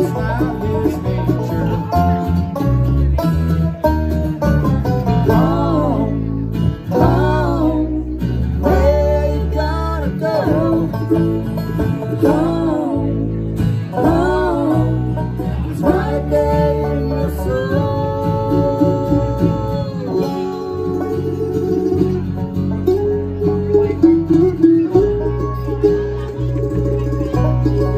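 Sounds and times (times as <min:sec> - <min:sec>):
bluegrass band playing: 0:00.0 - 0:27.9
person singing: 0:05.1 - 0:22.1.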